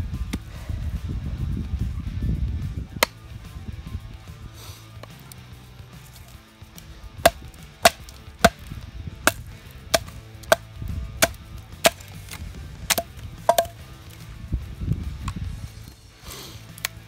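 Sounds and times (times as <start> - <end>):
wooden baton knocking knife spine: 7.2 - 8.7, 9.3 - 13.8.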